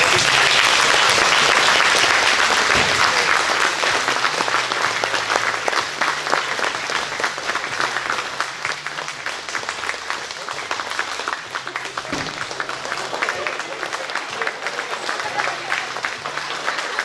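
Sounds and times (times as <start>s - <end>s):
audience applauding: 0.0s - 17.0s.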